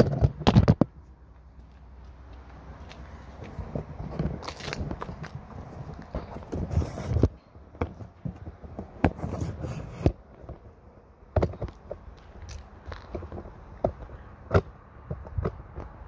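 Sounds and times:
camera handling rustling and knocks: 3.7 - 10.6.

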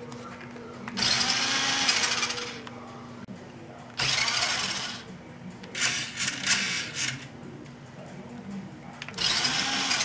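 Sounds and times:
toy car motor whirring: 1.0 - 2.6, 4.0 - 5.0, 5.8 - 7.2, 9.2 - 10.0.

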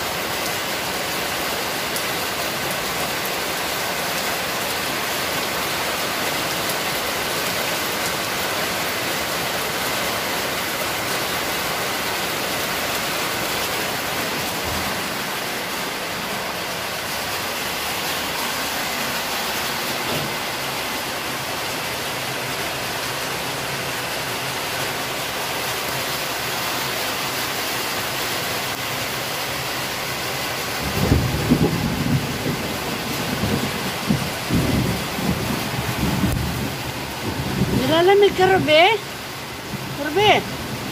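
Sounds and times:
heavy rain falling: 0.0 - 40.9
thunder rumble: 13.8 - 17.4, 30.8 - 38.7.

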